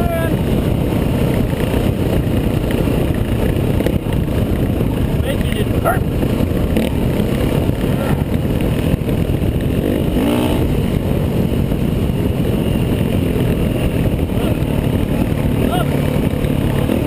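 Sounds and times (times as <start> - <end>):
dirt bike engine running: 0.0 - 17.0
wind buffeting microphone: 0.0 - 17.0.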